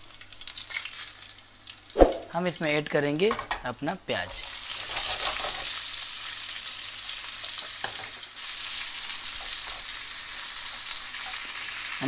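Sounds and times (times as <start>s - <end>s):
onions sizzling in oil: 4.0s - 12.0s.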